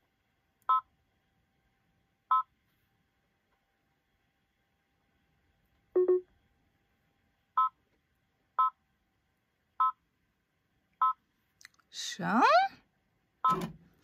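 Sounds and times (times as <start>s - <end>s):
control panel beeps: 6.0s - 6.2s, 13.4s - 13.7s.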